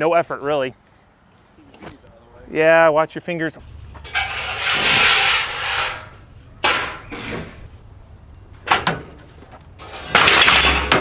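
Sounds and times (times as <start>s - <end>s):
metal panel scraping across metal: 4.0s - 7.8s.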